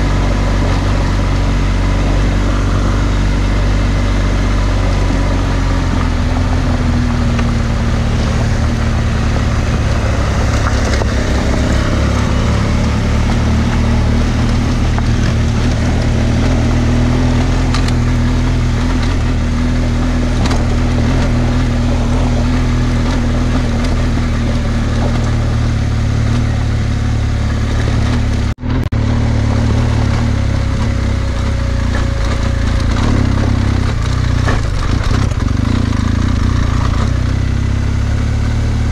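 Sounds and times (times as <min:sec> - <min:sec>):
wind noise: 0:00.0 - 0:26.8
motorcycle engine at low revs: 0:00.0 - 0:38.9
tyres on loose gravel: 0:00.0 - 0:38.9.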